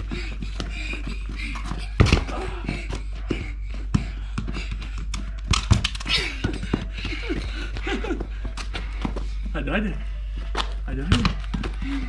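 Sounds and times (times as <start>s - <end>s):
music: 0.0s - 12.0s
running footsteps: 0.0s - 12.0s
football kicked and bouncing on stone: 1.5s - 9.2s, 10.5s - 11.8s.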